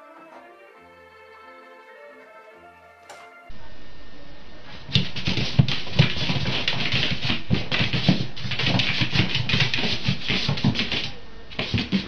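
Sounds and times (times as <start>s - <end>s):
cat paws scuffling on hard floor: 4.7s - 12.0s.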